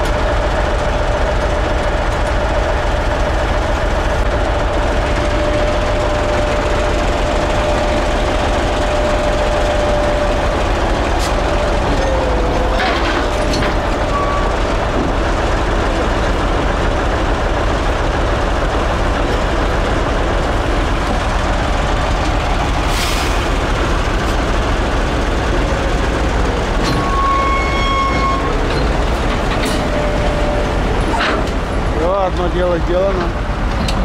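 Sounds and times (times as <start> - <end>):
tractor diesel engine under load: 0.0 - 34.0
metallic squeak: 26.8 - 29.0.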